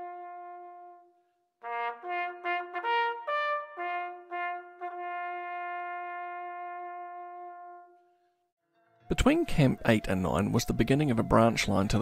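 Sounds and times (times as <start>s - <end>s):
bugle call on brass horn: 0.0s - 8.1s.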